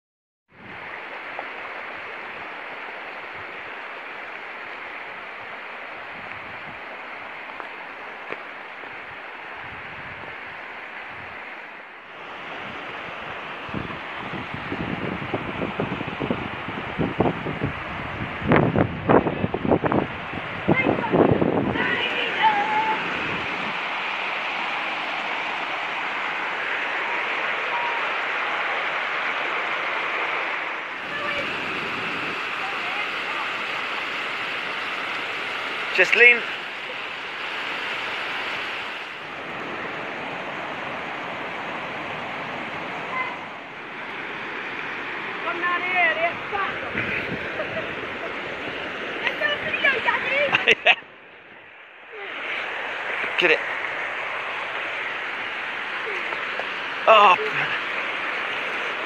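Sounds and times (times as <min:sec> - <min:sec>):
river running over stones: 0:00.5 - 0:59.0
stream rushing over boulders: 0:00.5 - 0:59.0.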